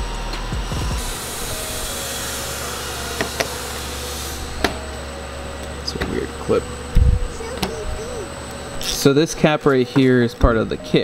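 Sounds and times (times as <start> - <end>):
steady shop hum: 0.0 - 11.0
rushing hiss of air: 1.0 - 4.6.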